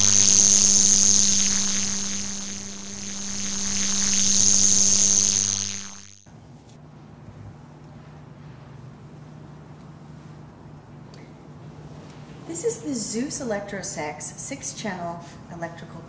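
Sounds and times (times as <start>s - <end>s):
electric buzzing hum: 0.0s - 6.3s.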